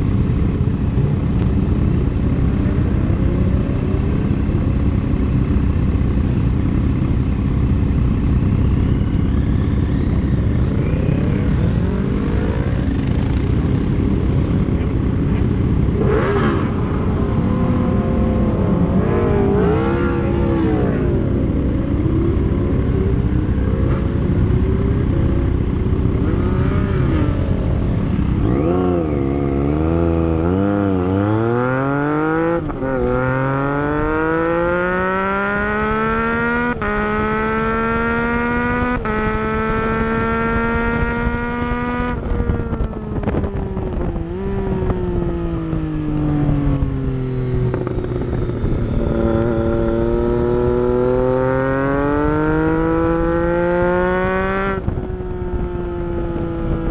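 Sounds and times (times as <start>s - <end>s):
motorcycle engine revving: 0.0s - 56.9s
wind rushing over microphone: 0.0s - 56.9s.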